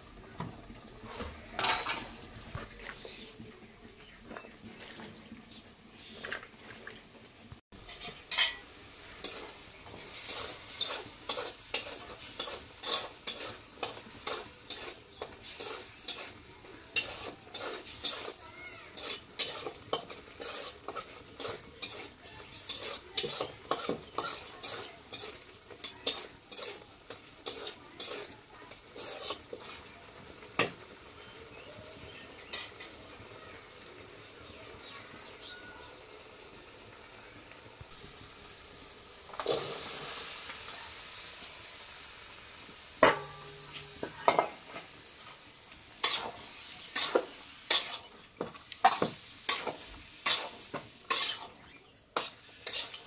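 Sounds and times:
frying sizzle: 0:00.0 - 0:53.0
metal spatula scraping pan: 0:01.0 - 0:02.3, 0:07.8 - 0:31.0, 0:43.0 - 0:44.9, 0:46.0 - 0:53.0.

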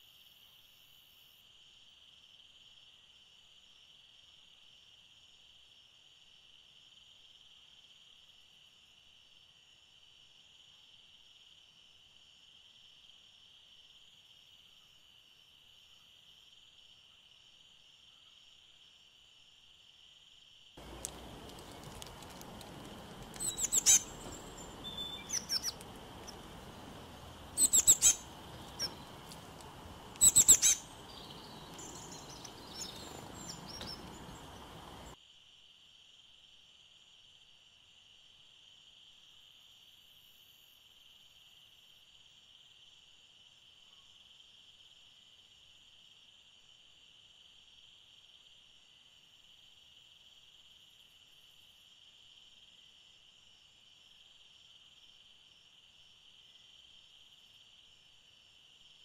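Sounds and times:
outdoor background noise: 0:00.0 - 0:59.0
birds calling: 0:20.8 - 0:35.2
high-pitched insect drone: 0:20.8 - 0:35.2.

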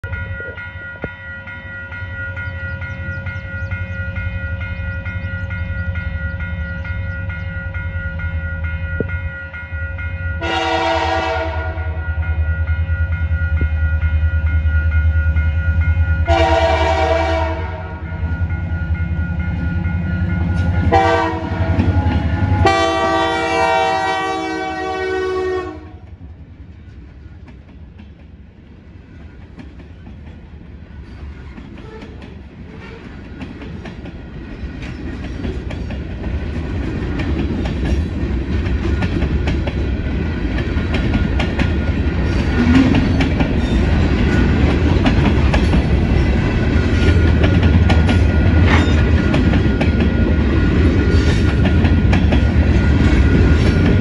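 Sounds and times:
locomotive engine rumbling: 0:00.0 - 0:54.0
train horn blasts: 0:10.4 - 0:12.3, 0:16.2 - 0:18.2, 0:20.8 - 0:26.1, 0:31.8 - 0:33.2
train wheels clattering on rails: 0:12.2 - 0:23.3, 0:26.0 - 0:54.0.

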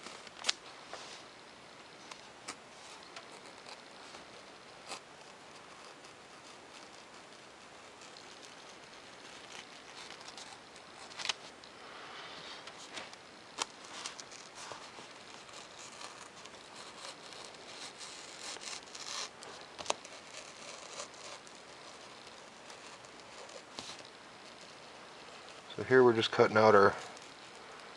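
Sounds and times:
knife scraping through paper: 0:12.7 - 0:27.9.

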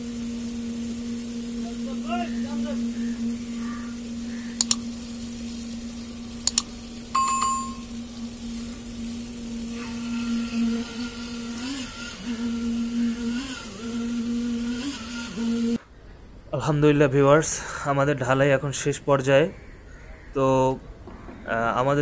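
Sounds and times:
concrete vibrator humming: 0:00.0 - 0:15.8
sharp clicks: 0:04.6 - 0:04.8, 0:06.4 - 0:06.7
short bell ding: 0:07.2 - 0:07.8.

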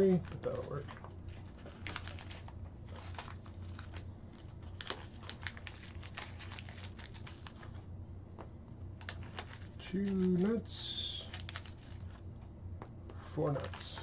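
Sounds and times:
low hum: 0:00.0 - 0:14.0
plastic bag crinkling: 0:00.1 - 0:07.8, 0:09.0 - 0:12.2.

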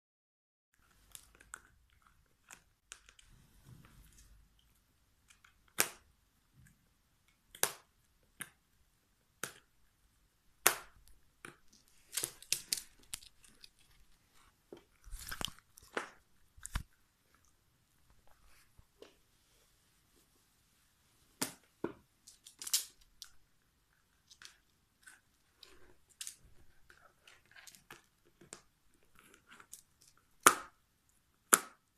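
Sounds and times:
rustling: 0:11.7 - 0:23.4.

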